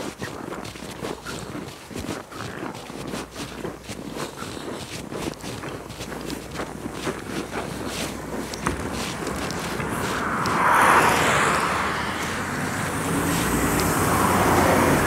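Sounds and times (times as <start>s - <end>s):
footsteps on packed snow: 0.0s - 15.0s
city bus running: 6.1s - 15.0s.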